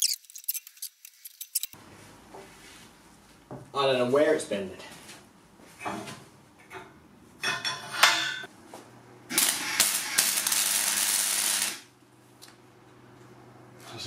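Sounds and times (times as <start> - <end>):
welding arc crackling: 9.3 - 12.0.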